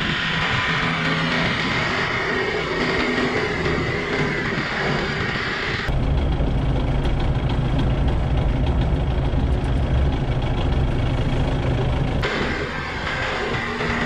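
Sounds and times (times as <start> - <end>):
diesel engine rumbling: 0.0 - 14.0.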